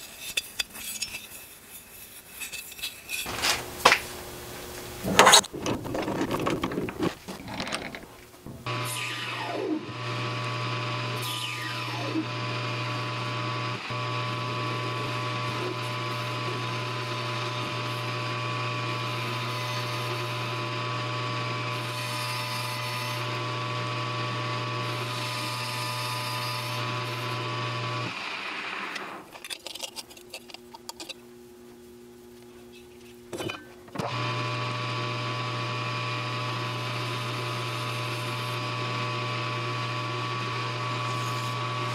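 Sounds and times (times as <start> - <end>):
metal lathe cutting: 8.7 - 29.2, 34.0 - 41.9.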